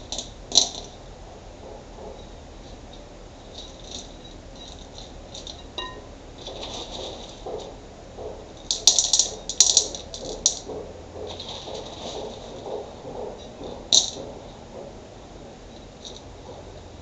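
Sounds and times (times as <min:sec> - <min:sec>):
pebbles clinking on glass: 0:03.5 - 0:06.1.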